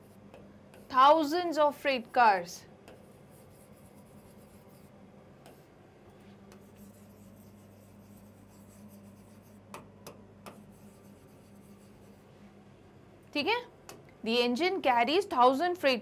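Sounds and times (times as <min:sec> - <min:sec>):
marker writing on whiteboard: 0:00.0 - 0:01.1, 0:02.8 - 0:05.8, 0:06.5 - 0:12.2.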